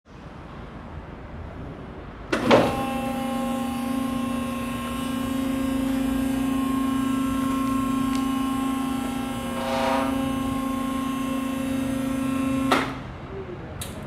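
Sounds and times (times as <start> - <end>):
electric motor and hydraulic pump humming: 2.3 - 13.1.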